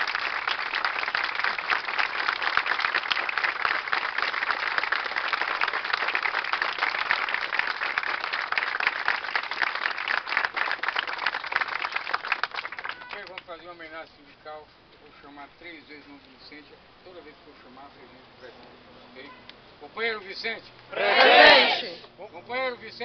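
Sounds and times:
crowd applauding: 0:00.0 - 0:13.4.

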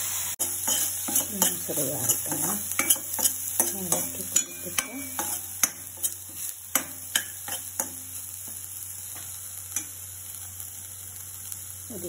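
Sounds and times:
hot oil sizzling: 0:00.0 - 0:12.0
spoon clinking against pan: 0:00.4 - 0:08.0.

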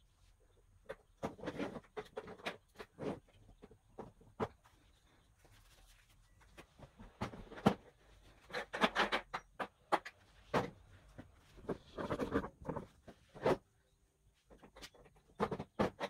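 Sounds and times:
hard plastic clicking and clattering: 0:06.6 - 0:13.5, 0:14.5 - 0:16.0.

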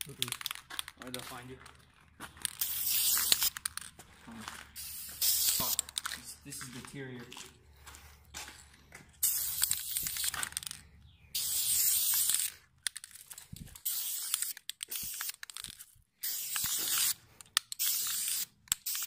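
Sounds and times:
spray paint can hissing: 0:02.4 - 0:03.9, 0:04.7 - 0:06.0, 0:09.2 - 0:10.7, 0:11.3 - 0:12.6, 0:13.8 - 0:19.0.

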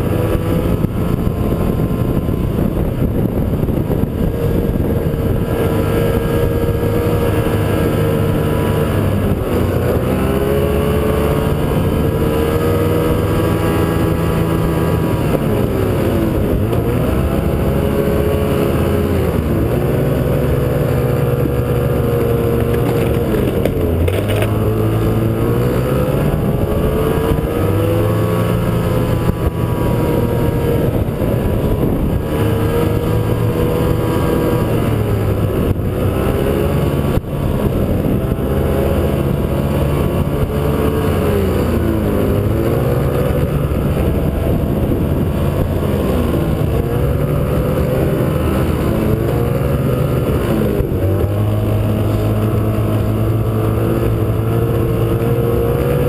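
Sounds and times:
snowmobile engine running: 0:00.0 - 0:56.0.

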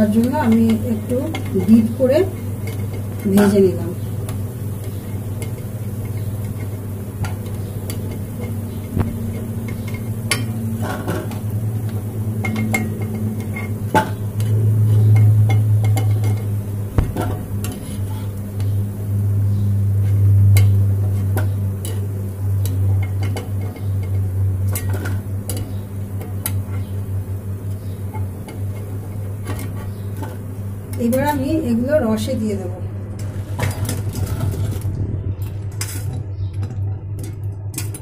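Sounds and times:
faint sizzle of deep-frying: 0:00.0 - 0:32.5
steady low hum: 0:00.0 - 0:38.0
metal spoon clinking on pan: 0:00.2 - 0:03.5.

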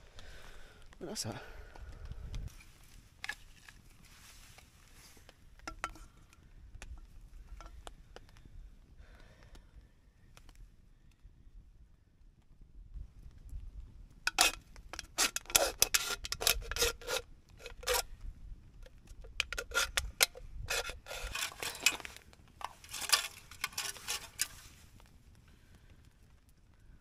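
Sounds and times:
scraping and rubbing: 0:14.3 - 0:18.1, 0:18.8 - 0:25.0.

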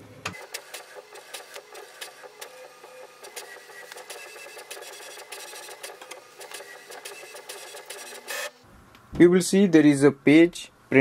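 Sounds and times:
printer carriage clicking: 0:00.3 - 0:08.5.

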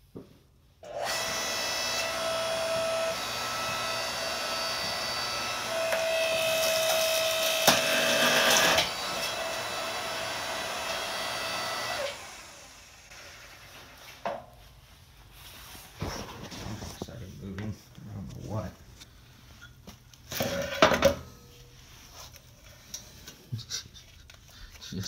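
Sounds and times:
log splitter whining: 0:00.8 - 0:13.4.

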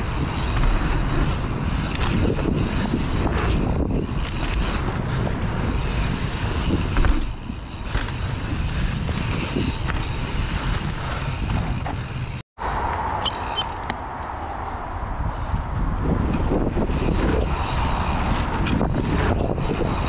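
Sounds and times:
bike knocks and rattles: 0:00.0 - 0:12.4
bike tyres rolling on dirt: 0:00.0 - 0:12.4, 0:15.8 - 0:20.0
wind on microphone: 0:00.0 - 0:20.0.

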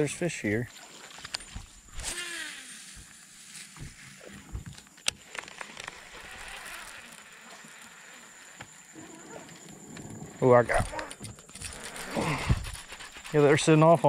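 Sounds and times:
fishing reel spool whirring: 0:01.0 - 0:03.2, 0:05.2 - 0:13.7
reel being cranked: 0:05.3 - 0:08.5, 0:10.7 - 0:14.0.

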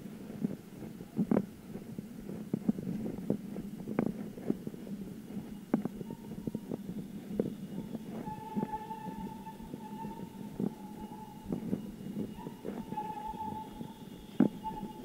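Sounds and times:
bicycle rattling over uneven street: 0:00.0 - 0:15.0
steady high tone: 0:07.6 - 0:15.0.

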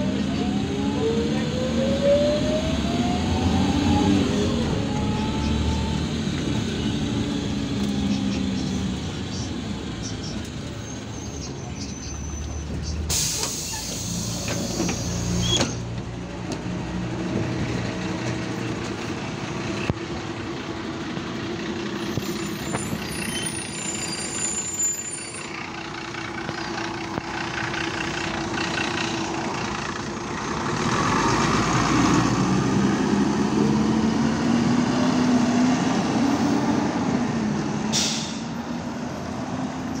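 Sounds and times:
diesel bus engine running: 0:00.0 - 0:40.0
bus compressed air hiss: 0:13.1 - 0:15.6, 0:37.9 - 0:38.5.

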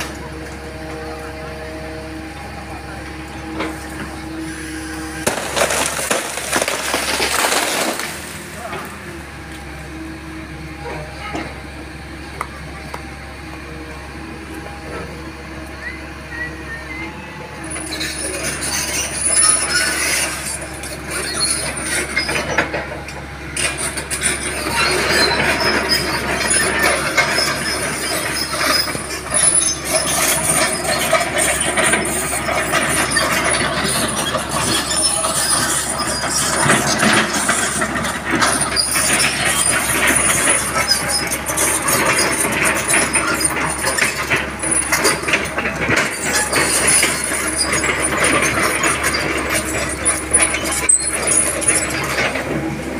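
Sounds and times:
diesel engine under load: 0:00.0 - 0:52.9
track links clanking: 0:17.7 - 0:52.9.

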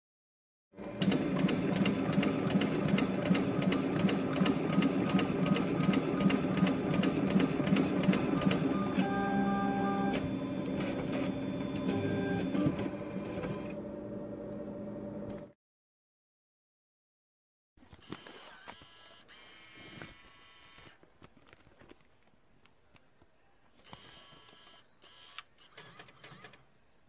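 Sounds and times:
small motorised machine humming: 0:00.8 - 0:15.5.

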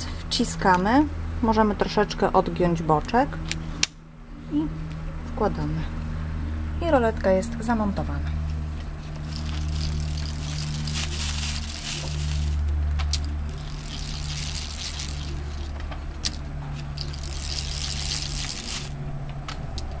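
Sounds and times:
steady low hum: 0:00.0 - 0:20.0
roller blind fabric rustling: 0:08.7 - 0:19.1.

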